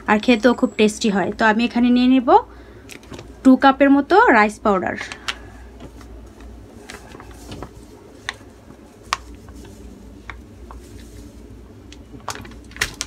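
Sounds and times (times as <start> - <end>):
plastic bag crinkling: 5.8 - 13.0.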